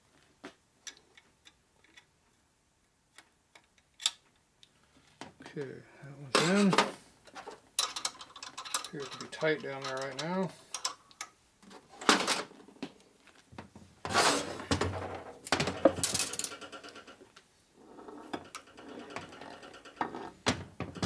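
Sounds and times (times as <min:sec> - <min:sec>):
metal clunks and scrapes: 0:14.0 - 0:17.1, 0:17.9 - 0:21.0.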